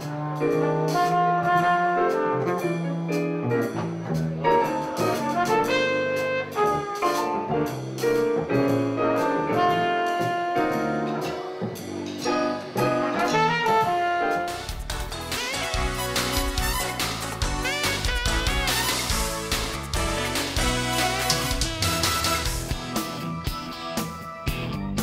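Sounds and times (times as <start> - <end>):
plucked upright bass: 0.0 - 13.7
drum kit: 0.0 - 25.0
electric keyboard: 2.0 - 25.0.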